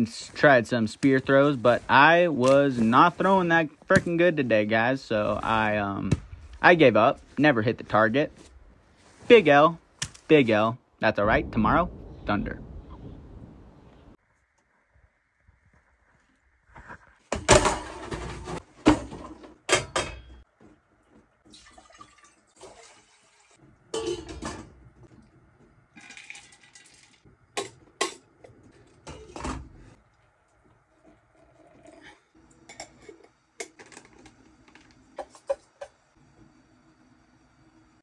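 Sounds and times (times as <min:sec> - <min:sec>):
food pouring into pot: 0:21.5 - 0:23.6, 0:26.0 - 0:27.2
pot and lid clanking: 0:23.9 - 0:24.8.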